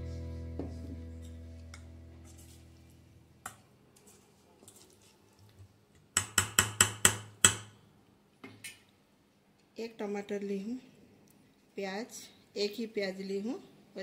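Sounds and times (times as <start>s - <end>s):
background music: 0.0s - 2.3s.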